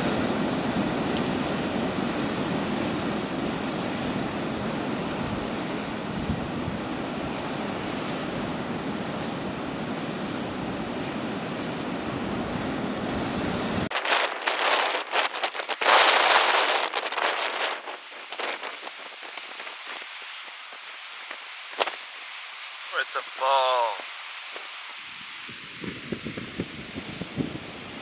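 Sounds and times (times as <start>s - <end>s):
sea surf breaking on rocks: 0.0s - 28.0s
wind buffeting microphone: 4.1s - 8.8s, 12.2s - 22.0s, 24.6s - 28.0s.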